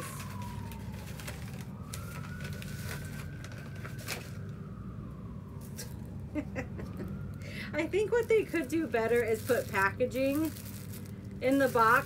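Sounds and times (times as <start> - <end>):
paper wrapping crinkling: 0.0 - 4.6, 7.9 - 12.0
distant siren wailing: 0.0 - 12.0.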